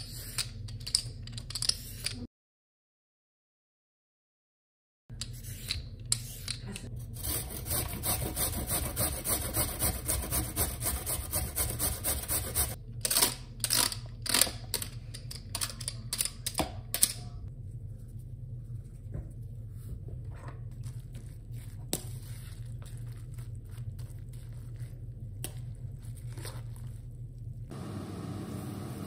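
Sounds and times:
cucumber rasping on metal grater: 0:07.2 - 0:12.8.

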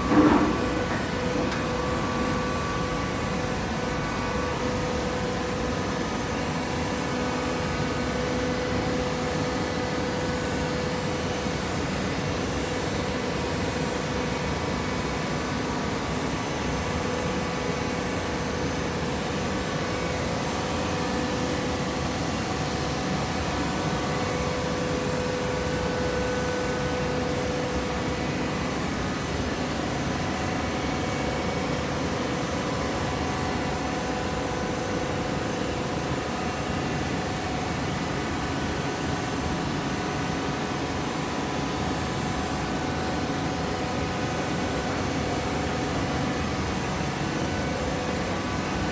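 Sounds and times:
baler machine hum with whine: 0:00.0 - 0:48.9.

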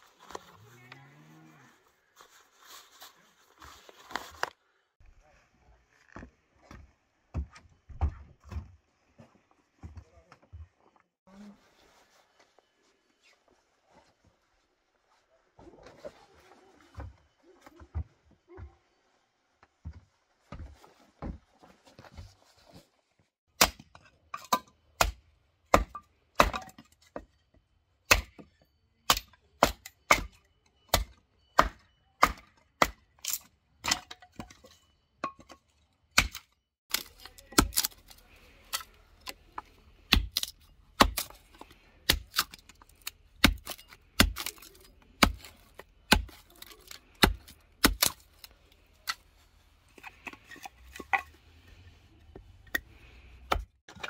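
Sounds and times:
hatchet chopping kindling: 0:23.6 - 0:26.8, 0:29.1 - 0:34.1, 0:36.2 - 0:39.4, 0:40.0 - 0:48.5.

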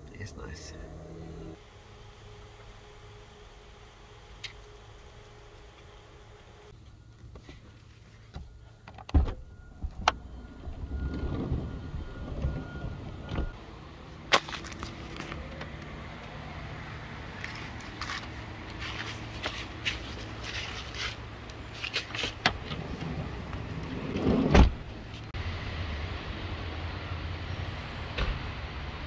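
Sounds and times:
street traffic hum: 0:00.0 - 0:29.0
van door opening: 0:22.0 - 0:24.9.

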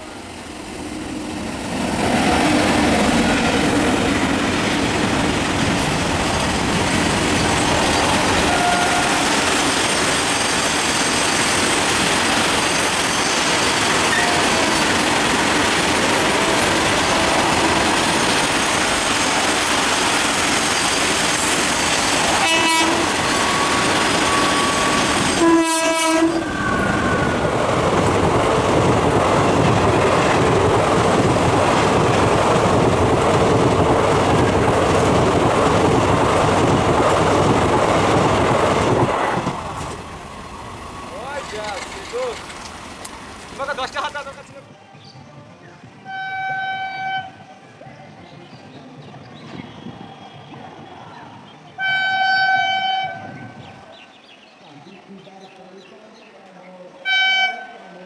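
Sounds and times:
train wheels rumbling on rails: 0:00.0 - 0:54.4
locomotive horn blast: 0:08.4 - 0:09.3, 0:22.3 - 0:27.3, 0:46.1 - 0:47.4, 0:51.8 - 0:53.3, 0:57.0 - 0:57.8.

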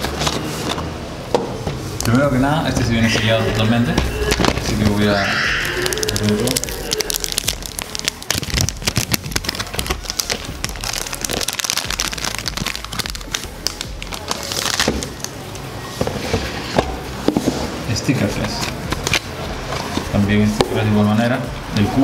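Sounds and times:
plastic wrap crackling: 0:04.2 - 0:15.5.

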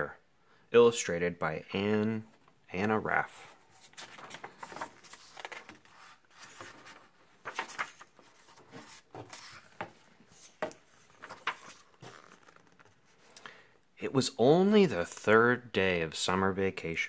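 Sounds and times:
book pages rustling: 0:03.3 - 0:13.4.

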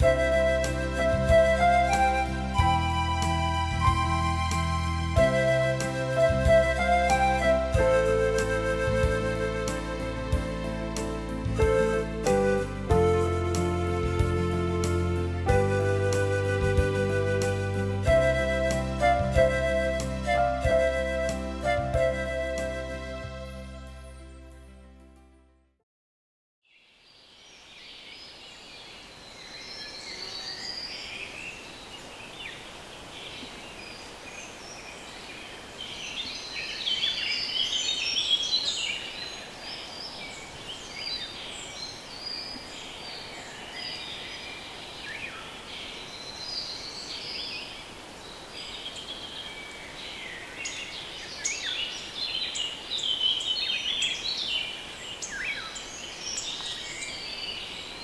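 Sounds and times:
songbirds singing and calling: 0:26.7 - 0:58.0.

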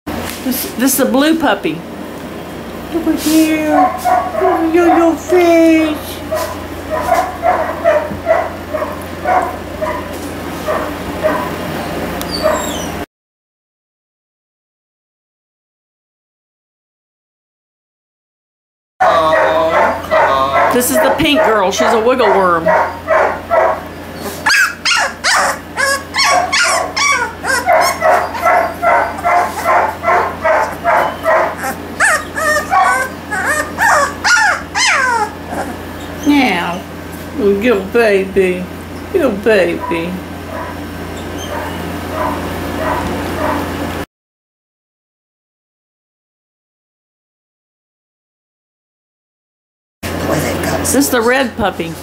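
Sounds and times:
puppy whimpering and yipping: 0:12.3 - 0:13.0, 0:24.2 - 0:36.8, 0:40.5 - 0:43.6.

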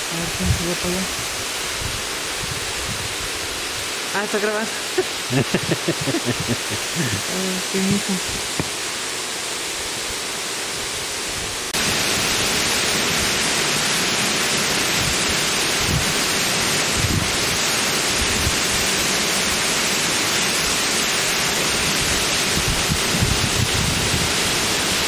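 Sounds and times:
waterfall pouring onto rocks: 0:00.0 - 0:25.0.

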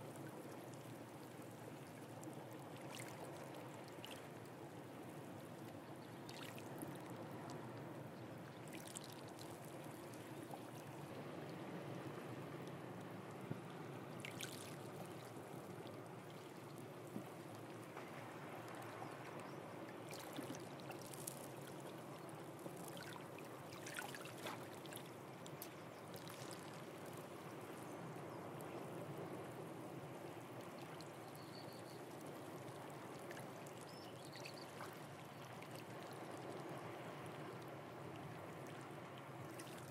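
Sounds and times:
small splashes and drips: 0:01.9 - 0:04.4, 0:06.3 - 0:07.1, 0:08.6 - 0:10.9, 0:14.2 - 0:16.5, 0:20.1 - 0:22.0, 0:22.8 - 0:27.2, 0:39.5 - 0:39.9.

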